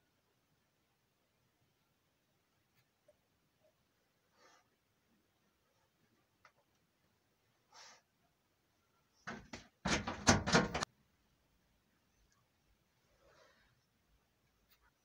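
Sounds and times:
dense rattling: 9.3 - 10.9
sharp knocks and clatter: 9.3 - 10.9.

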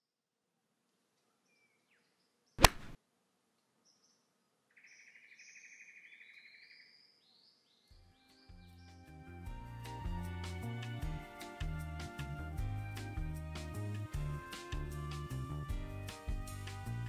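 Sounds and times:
golf club striking ball: 2.6 - 3.0
birds chirping and trilling: 4.7 - 9.1
music: 7.9 - 17.0.

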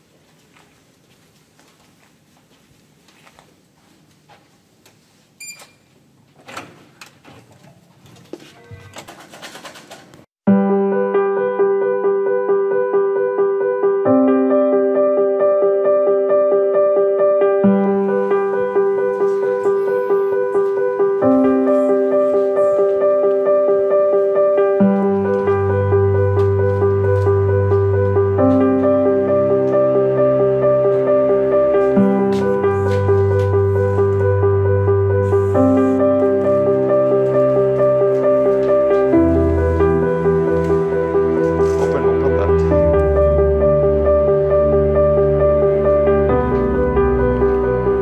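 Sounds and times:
handling noises clatter: 6.6 - 10.3
piano repeated notes: 10.4 - 48.0
held bass note: 41.2 - 44.3.

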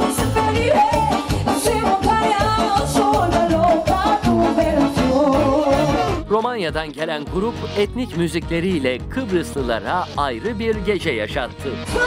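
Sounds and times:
person singing into microphone: 0.0 - 6.2
live band music: 0.0 - 12.0
steady drum beat: 0.0 - 12.0.

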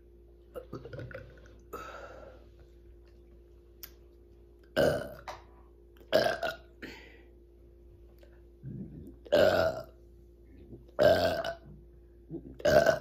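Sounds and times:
breathy sound: 1.6 - 2.6, 6.8 - 7.4
woman burping: 4.8 - 5.2, 6.1 - 7.0, 8.9 - 9.9, 11.0 - 11.6, 12.3 - 13.0.

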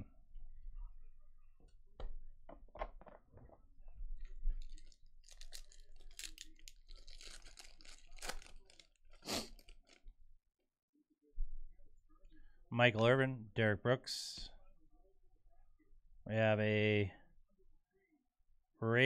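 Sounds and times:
foil wrapper crinkling: 4.6 - 10.0
sharp crackle of foil: 4.6 - 10.0.

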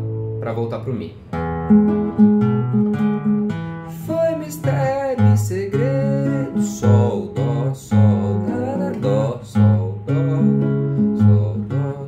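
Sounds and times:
nylon-string guitar chords: 0.0 - 12.0
man singing: 3.9 - 12.0.

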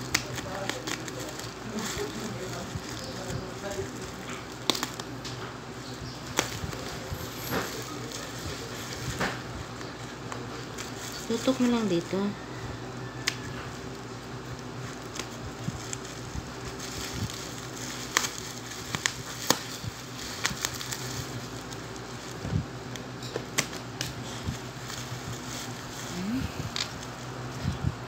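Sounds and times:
scissors snipping: 0.0 - 2.2, 4.3 - 5.4, 13.2 - 13.6
bubble wrap crinkling: 0.0 - 28.0.

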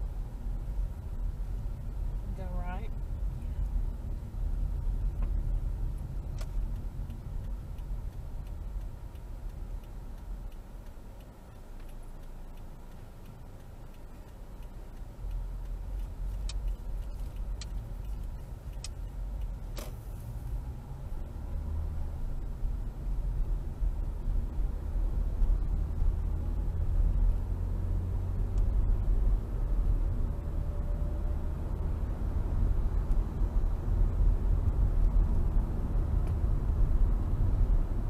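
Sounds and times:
car engine and tyre rumble: 0.0 - 38.0
sharp clicks: 5.0 - 20.3.

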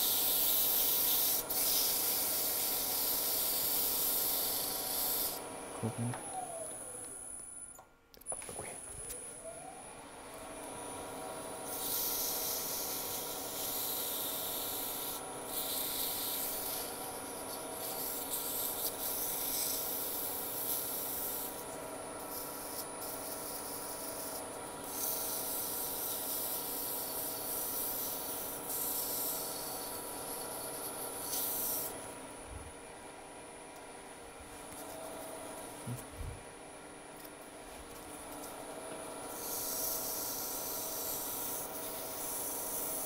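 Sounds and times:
sandpaper hissing on spinning wood: 0.0 - 5.4, 11.6 - 21.6, 22.2 - 32.0, 39.3 - 43.0
lathe motor whine: 0.0 - 7.7, 8.8 - 43.0.

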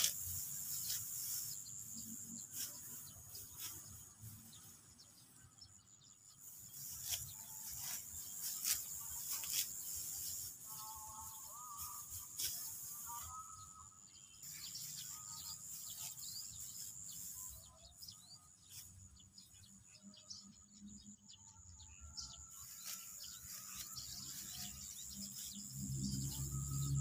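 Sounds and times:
birds chirping: 0.0 - 27.0
high insect whine: 5.4 - 19.4, 22.5 - 27.0.

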